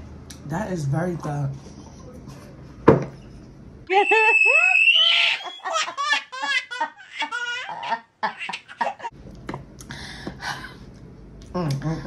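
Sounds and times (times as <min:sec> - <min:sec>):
baby giggling: 0:05.0 - 0:09.1.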